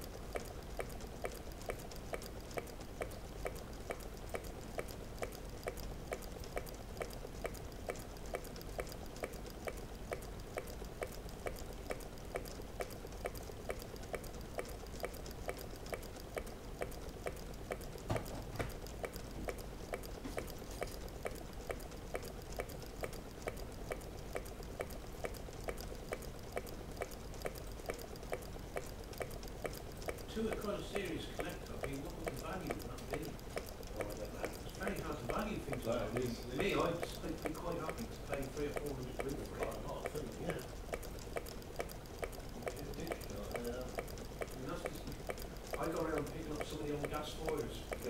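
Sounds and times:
small engine mechanism clicking: 0:00.0 - 0:48.0
loud mechanical knock: 0:18.1 - 0:18.8.

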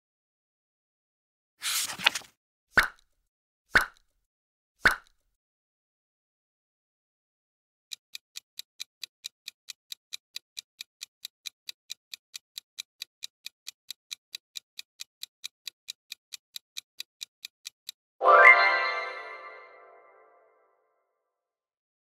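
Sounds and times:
clock ticking: 0:07.9 - 0:18.0.

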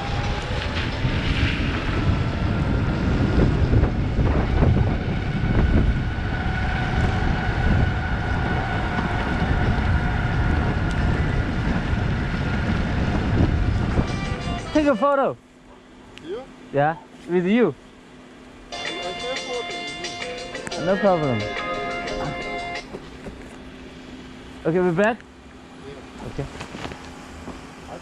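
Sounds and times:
wind buffeting microphone: 0:00.0 - 0:14.6.

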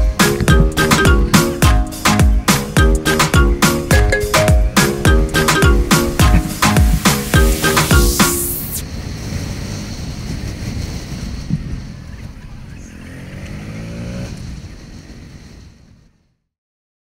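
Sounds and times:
wind rushing over microphone: 0:05.8 - 0:16.2
motorcycle engine revving: 0:08.8 - 0:15.7.

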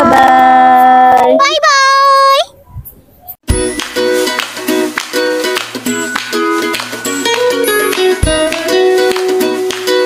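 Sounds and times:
light plucked music: 0:03.5 - 0:10.0.

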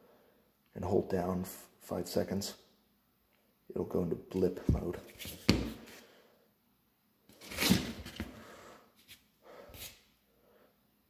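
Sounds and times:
soft scuffs on cardboard: 0:05.0 - 0:06.0.

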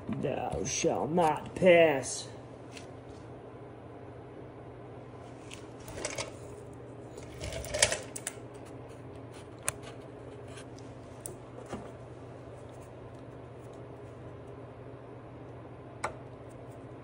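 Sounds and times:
steady low hum: 0:00.0 - 0:17.0
small metal parts clicking and rattling: 0:07.2 - 0:08.4.

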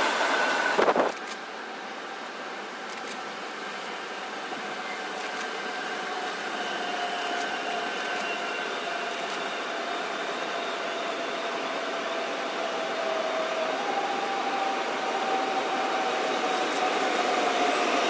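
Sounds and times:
train whine: 0:00.0 - 0:18.0.

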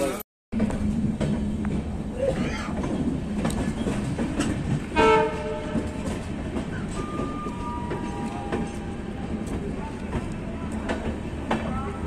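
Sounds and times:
train running with wheels clicking: 0:00.0 - 0:12.0
train horn: 0:04.9 - 0:06.0.

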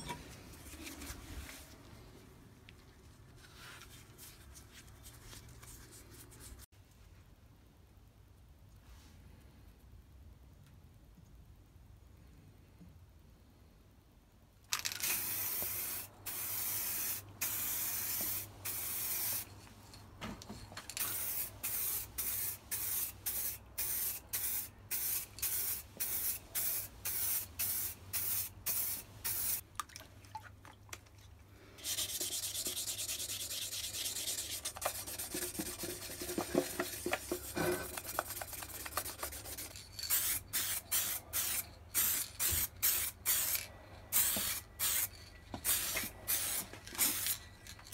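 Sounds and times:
spray paint can hissing: 0:14.7 - 0:19.5, 0:20.9 - 0:29.6, 0:31.8 - 0:36.3, 0:37.9 - 0:47.4.

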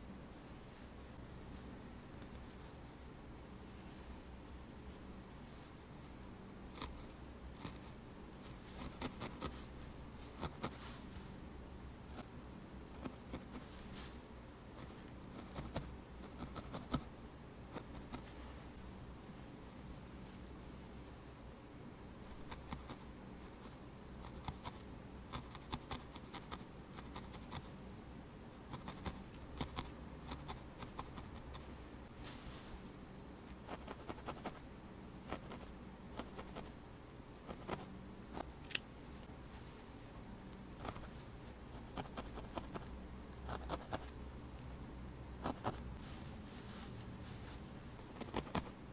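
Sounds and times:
felting needle poking wool: 0:06.7 - 0:09.7, 0:10.3 - 0:11.0, 0:12.9 - 0:14.1, 0:14.7 - 0:17.1, 0:17.7 - 0:18.4, 0:22.3 - 0:27.7, 0:28.7 - 0:31.7, 0:35.3 - 0:36.7, 0:40.8 - 0:42.9, 0:48.0 - 0:48.7.

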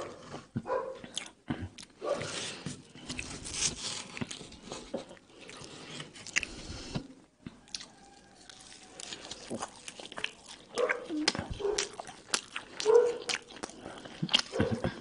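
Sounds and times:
wet chewing: 0:07.4 - 0:15.0.

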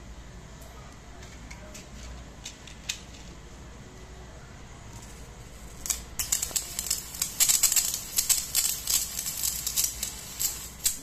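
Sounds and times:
crackling sparks: 0:04.8 - 0:11.0.

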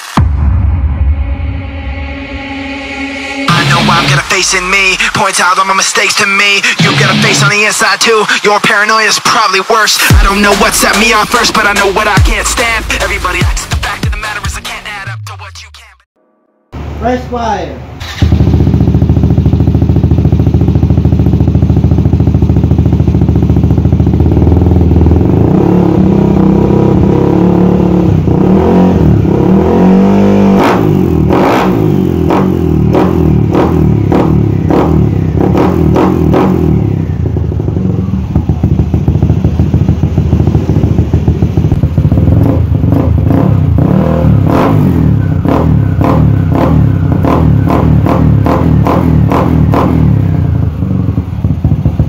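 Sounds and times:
scooter engine running loud: 0:18.0 - 0:52.0.

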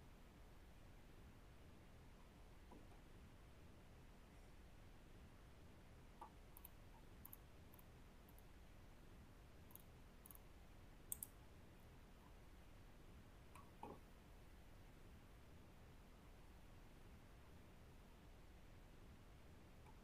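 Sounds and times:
soft sharp clicks: 0:11.1 - 0:11.4.

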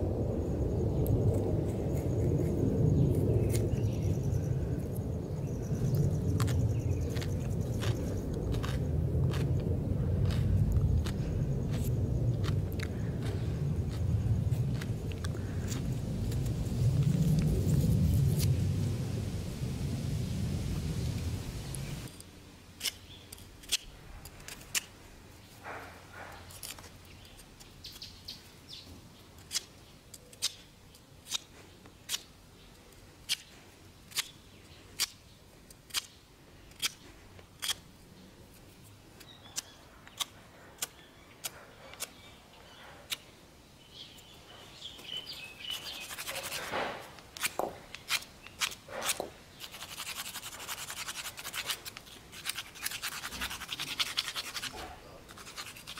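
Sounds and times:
tool scraping stone: 0:45.8 - 0:55.9.

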